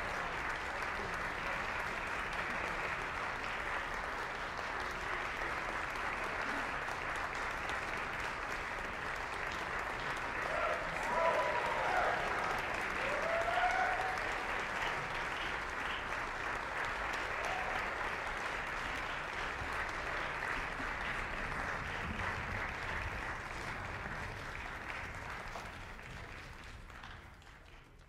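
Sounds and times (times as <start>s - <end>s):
audience applauding: 0.0s - 28.0s
short whoop: 10.6s - 14.2s.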